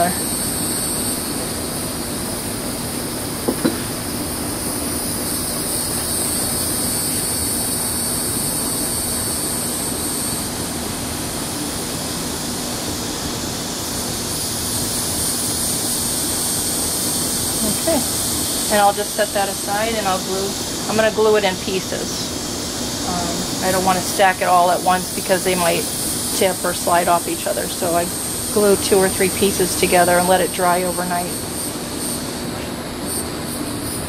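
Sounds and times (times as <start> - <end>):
glassware clinking set down: 3.5 - 3.9
high hiss: 3.5 - 34.0.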